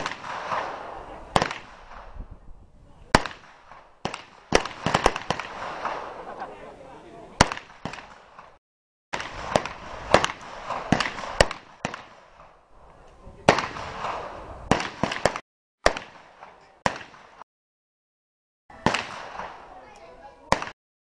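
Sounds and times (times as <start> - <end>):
background murmur: 5.6 - 7.4, 18.7 - 20.7.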